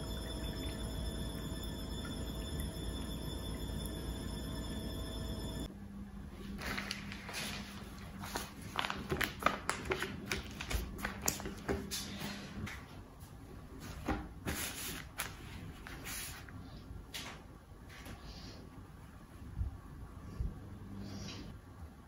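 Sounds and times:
newspaper rustling and crackling: 6.5 - 12.2, 14.0 - 16.5.

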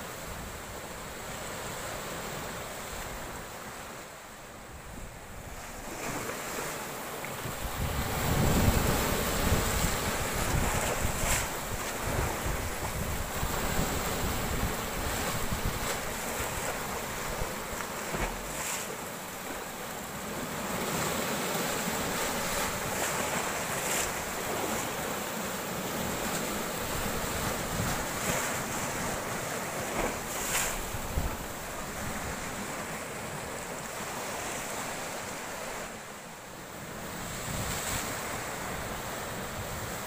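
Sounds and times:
waves breaking over rocks: 5.0 - 35.9
wind rumbling on microphone: 7.4 - 18.6, 29.9 - 32.5.

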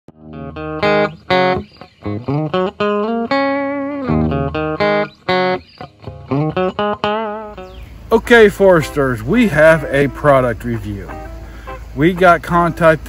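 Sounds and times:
sliding electric guitar melody: 0.1 - 13.0.

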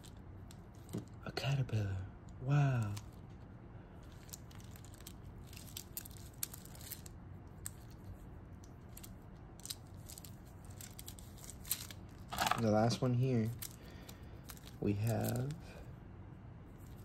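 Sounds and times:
plastic bag crinkling: 4.0 - 15.6.

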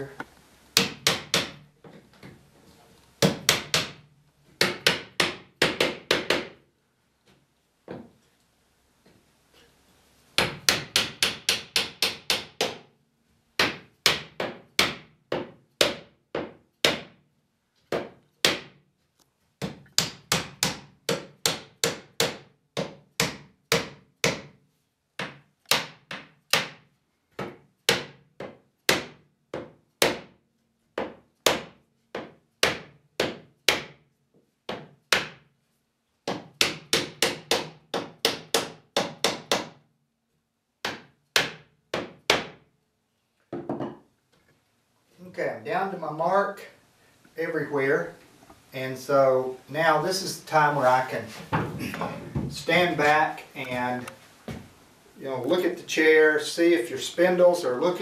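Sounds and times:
hammer knocking on wood: 13.6 - 17.2, 43.5 - 44.0, 51.5 - 52.6.

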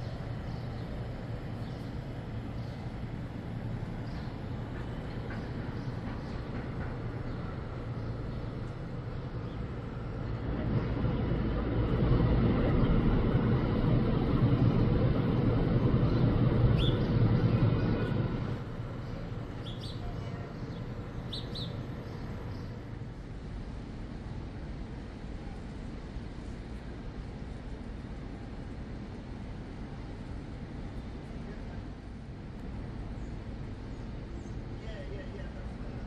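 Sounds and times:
bird chirps: 16.8 - 17.1, 19.1 - 22.8.

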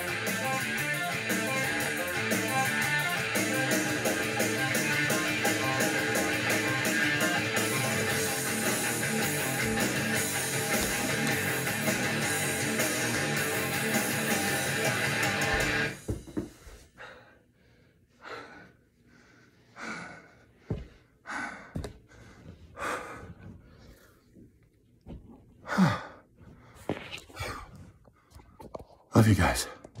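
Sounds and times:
rock music with electric guitar: 0.0 - 16.1
heavy breathing: 16.5 - 24.5, 25.6 - 28.6.

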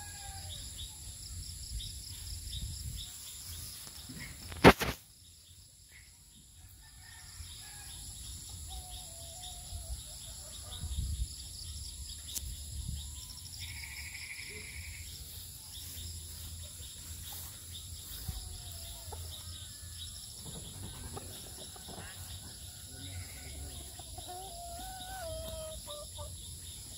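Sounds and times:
insects chirping: 0.0 - 26.9
buzzy insect trill: 13.2 - 15.4.

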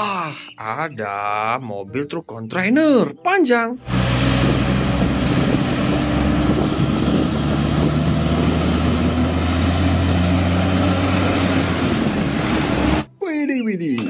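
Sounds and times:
road and wind noise: 3.8 - 13.1
truck diesel engine droning: 3.8 - 13.1.

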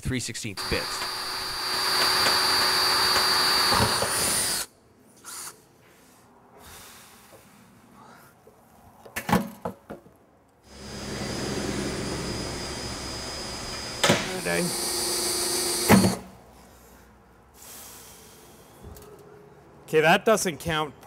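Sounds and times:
drill drilling through metal: 0.6 - 4.7, 10.7 - 16.2
sharp clicks: 0.7 - 4.6.

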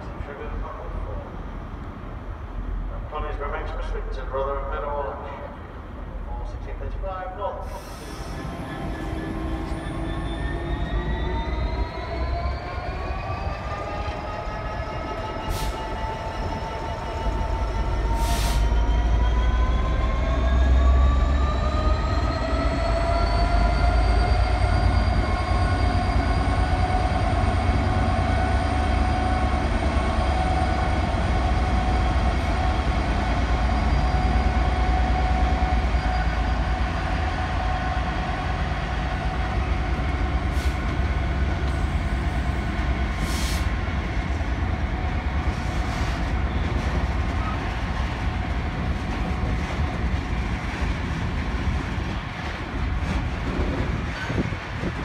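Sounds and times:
deep train rumble: 0.0 - 55.0
diesel locomotive engine under power: 0.0 - 55.0
brief hisses: 43.2 - 43.7.

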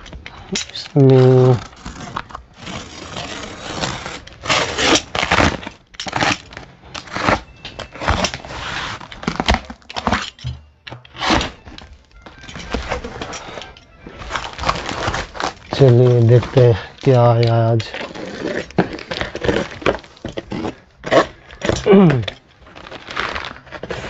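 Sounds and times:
packing tape being slit: 0.0 - 24.0
cardboard box flaps tearing open: 1.0 - 10.2, 14.2 - 17.1, 22.0 - 24.0.

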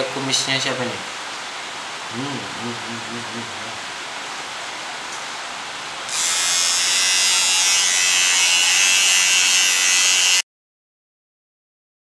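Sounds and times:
electric shaver buzzing: 6.1 - 10.4.

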